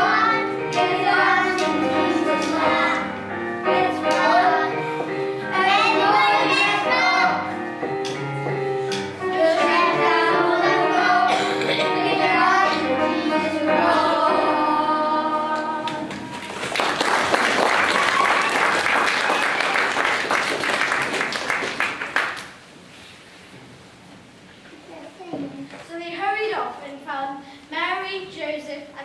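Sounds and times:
children singing: 0.0s - 7.5s, 9.2s - 16.3s
instrumental backing music: 0.0s - 16.3s
audience applauding: 16.1s - 22.6s.

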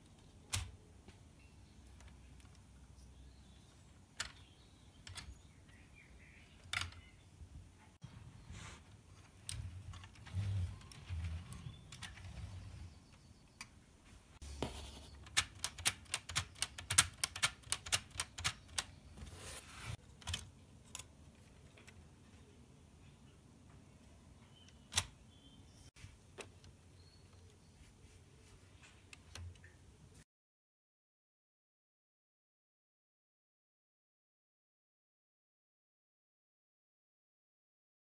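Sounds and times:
plastic toy clicks and knocks: 15.3s - 18.9s.

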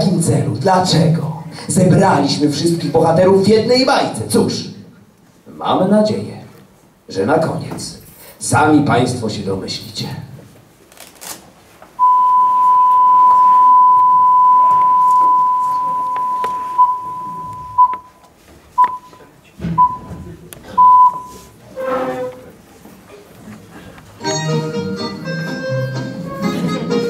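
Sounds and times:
high test tone beeps: 12.0s - 18.2s, 18.8s - 19.2s, 19.8s - 20.2s, 20.8s - 21.5s.

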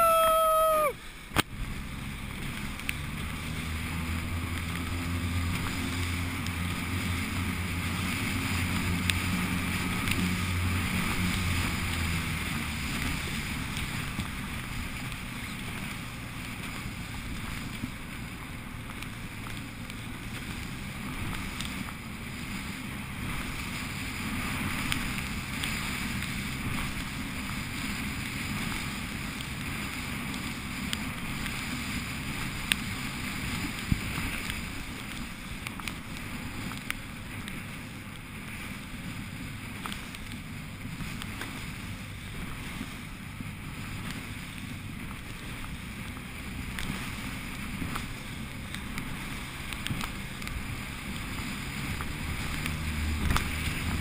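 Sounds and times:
outboard motor hum: 0.0s - 54.0s
wind buffeting microphone: 0.0s - 54.0s
water splashing against boat hull: 1.0s - 54.0s.

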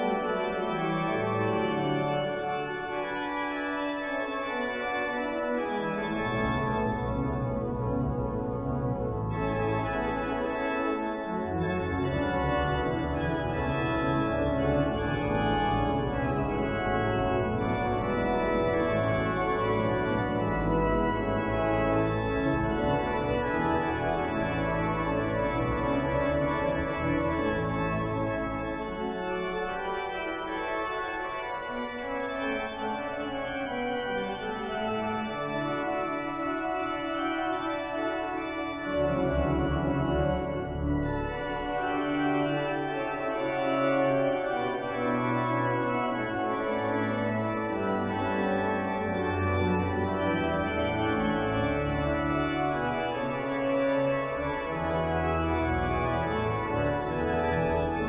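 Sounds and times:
pipe organ playing chords: 0.0s - 58.0s.

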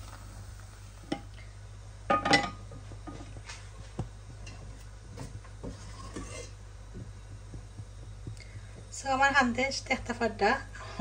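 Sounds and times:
steady low hum: 0.0s - 11.0s
dishes and utensils clinking: 2.1s - 2.6s.

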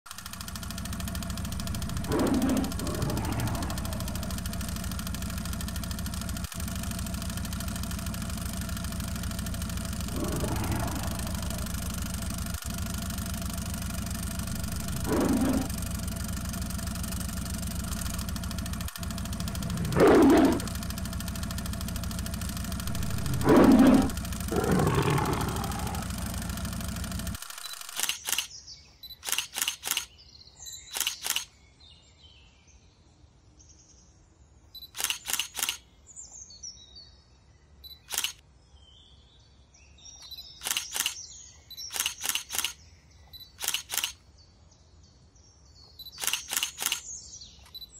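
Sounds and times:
loud rough sound: 0.1s - 27.6s
engine idling: 0.1s - 28.4s, 46.2s - 47.0s
big cat snarling and growling: 0.2s - 5.8s, 8.4s - 21.2s, 22.5s - 27.5s.

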